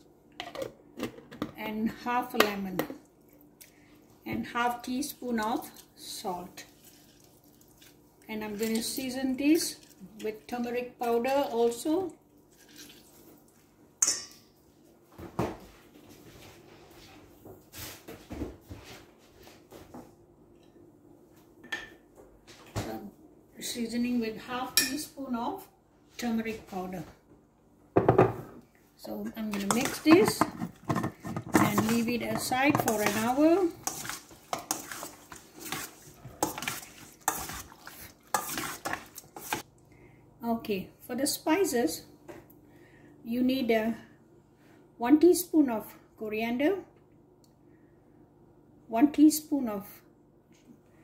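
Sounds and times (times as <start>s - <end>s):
spoon clinking against metal bowl: 14.0s - 14.4s
spoon scraping through marinade: 29.5s - 39.6s.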